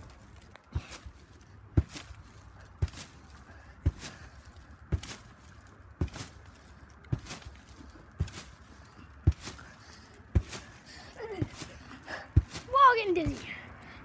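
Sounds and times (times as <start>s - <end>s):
trampoline mat thudding: 0.8s - 2.2s, 2.8s - 3.2s, 3.8s - 4.3s, 4.9s - 5.3s, 6.0s - 6.4s, 7.1s - 7.6s, 8.2s - 8.6s, 9.2s - 13.5s.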